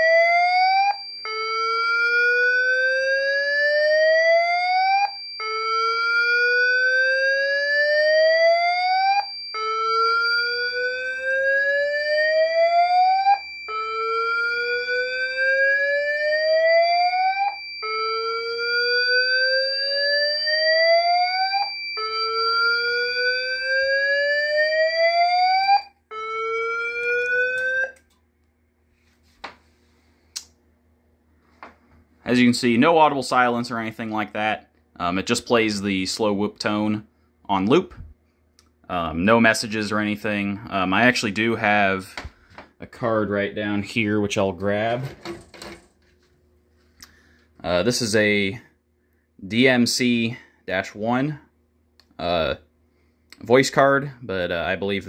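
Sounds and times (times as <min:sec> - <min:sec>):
rising whoop alarm tone: 0:00.0 - 0:28.0
steady high alarm tone: 0:00.0 - 0:28.1.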